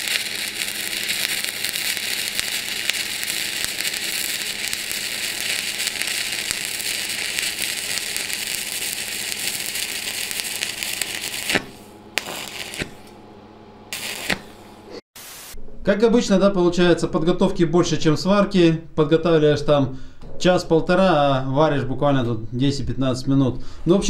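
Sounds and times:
welding arc crackling and sizzling: 0:00.0 - 0:13.2, 0:13.9 - 0:15.6.

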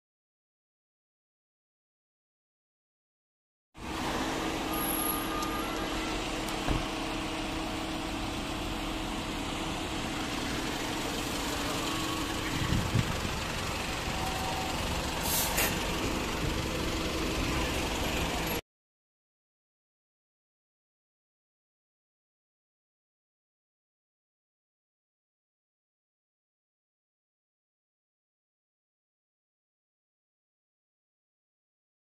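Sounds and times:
fire engine diesel engine: 0:03.8 - 0:18.6
road noise: 0:03.8 - 0:18.6
air brakes hissing: 0:14.1 - 0:16.0.

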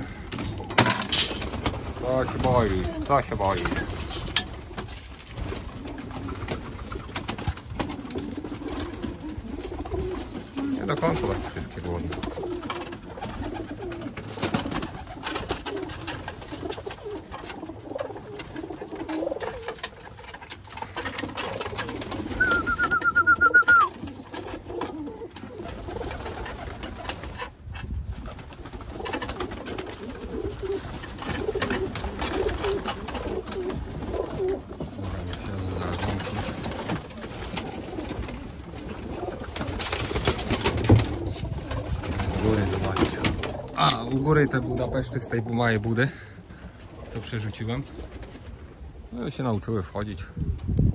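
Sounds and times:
wings flapping: 0:00.0 - 0:49.0
pigeons cooing: 0:00.0 - 0:49.1.

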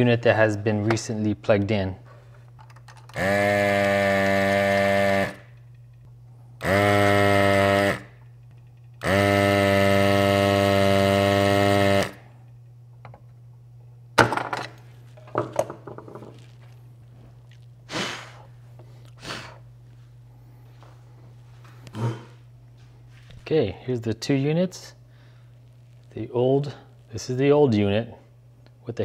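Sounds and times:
vacuum pump buzzing: 0:02.9 - 0:20.9.

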